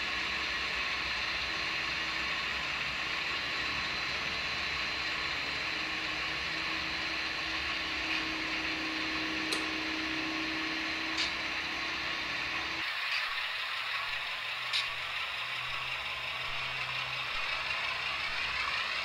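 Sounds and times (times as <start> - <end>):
model locomotive engine sound: 0.0 - 19.0
whir of motors and gears: 0.0 - 19.0
sharp click: 9.5 - 9.7, 11.2 - 11.4, 14.7 - 15.1.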